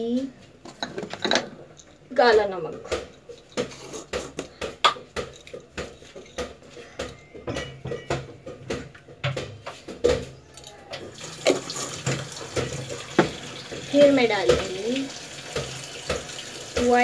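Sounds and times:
spoon scraping plastic jar: 3.6 - 4.5.

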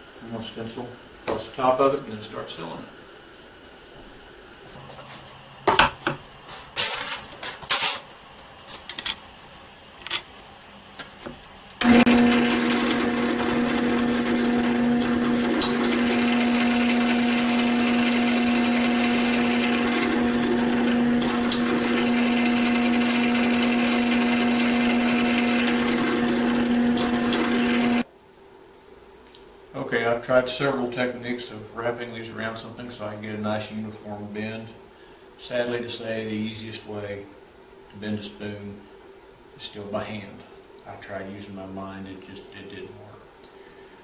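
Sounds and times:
drill bit boring through metal: 11.8 - 28.0
drill press humming: 11.8 - 28.0.

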